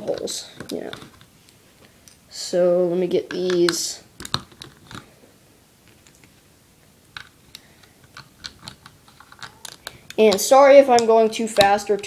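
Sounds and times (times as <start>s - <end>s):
plastic bricks clicking: 3.3s - 5.1s, 7.1s - 12.0s.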